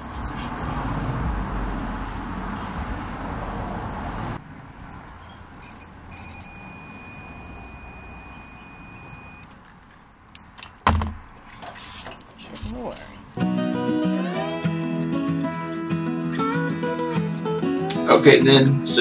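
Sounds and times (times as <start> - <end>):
multimeter continuity beep: 5.6 - 9.5
sharp knock: 10.8 - 11.3.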